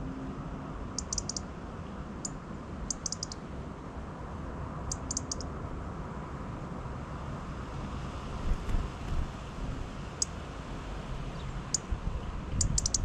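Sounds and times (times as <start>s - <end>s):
low outdoor rumble: 0.0s - 13.0s
songbird high call notes: 1.0s - 1.4s.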